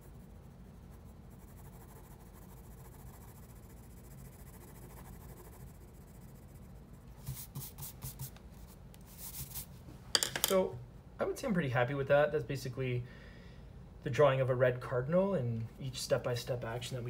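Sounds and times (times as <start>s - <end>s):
pencil shading on paper: 0.0s - 8.4s
pencil scratching on paper: 0.0s - 9.7s
steady low hum: 0.0s - 17.0s.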